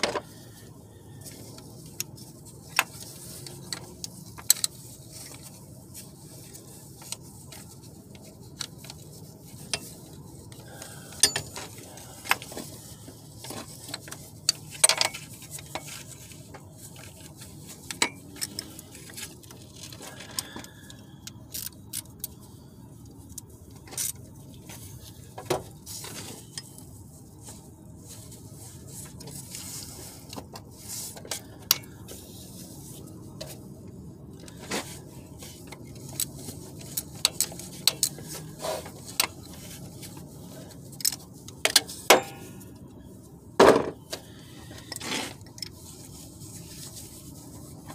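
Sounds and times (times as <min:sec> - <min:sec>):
low steady hum: 0:00.0 - 0:47.9
metal tools clinking: 0:11.1 - 0:12.0.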